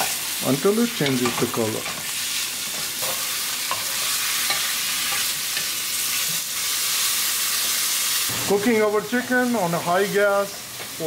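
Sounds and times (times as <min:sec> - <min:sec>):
chicken sizzling in oil: 0:00.0 - 0:11.0
spatula scraping and clicking pan: 0:01.0 - 0:06.4.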